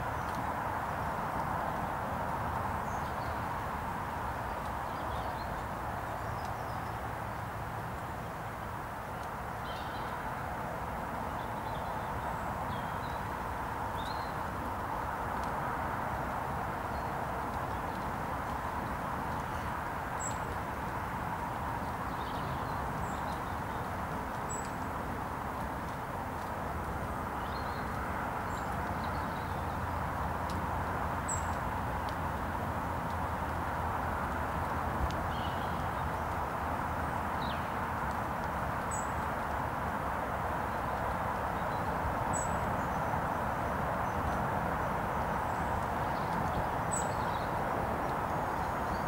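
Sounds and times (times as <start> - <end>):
small birds chirping: 0.0 - 10.4, 11.2 - 14.7, 16.3 - 39.7, 40.5 - 49.0
outdoor background noise: 0.0 - 49.0.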